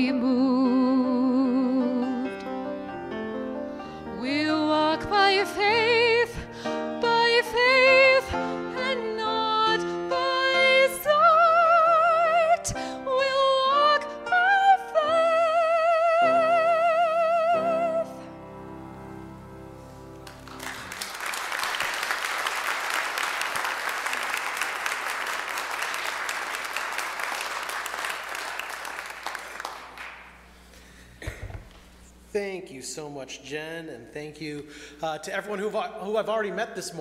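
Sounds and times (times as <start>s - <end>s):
woman singing with vibrato: 0.0s - 2.4s, 4.1s - 18.3s
piano accompaniment: 0.0s - 21.3s
congregation applauding: 20.2s - 30.6s.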